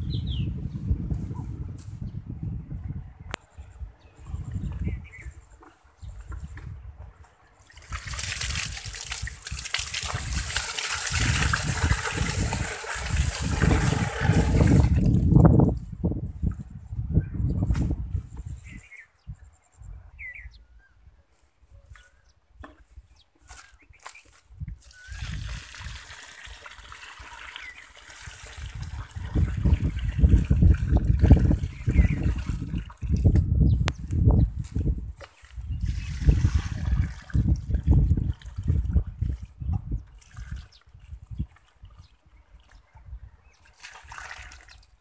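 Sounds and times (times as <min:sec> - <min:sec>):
water pouring onto soil: 0:07.6 - 0:15.4, 0:24.8 - 0:33.4, 0:35.5 - 0:42.8, 0:43.6 - 0:45.0.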